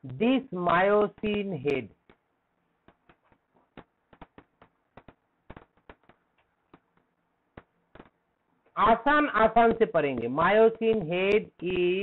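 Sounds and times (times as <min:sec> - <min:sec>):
stylus tapping on tablet screen: 0:00.6 - 0:08.3.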